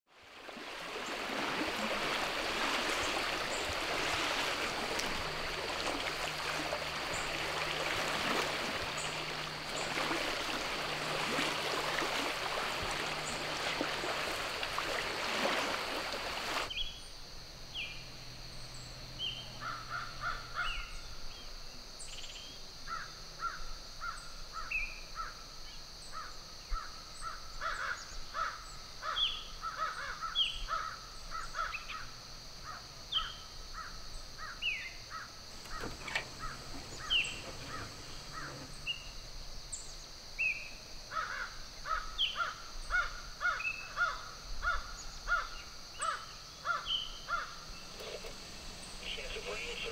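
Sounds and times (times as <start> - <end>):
short bird calls: 34.4 - 39.1
steady high hum: 47.4 - 49.9.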